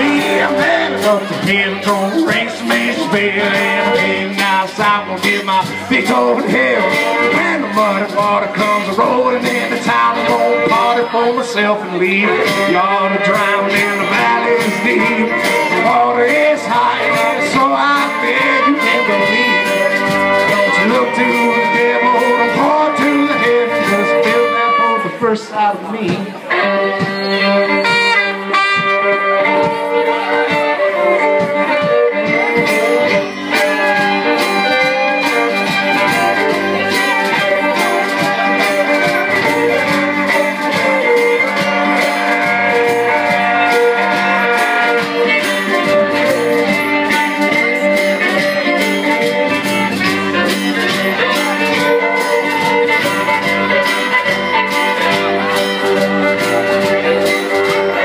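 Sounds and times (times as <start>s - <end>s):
bowed strings melody: 0.0s - 58.0s
live band playing: 0.0s - 58.0s
steady beat: 27.8s - 58.0s.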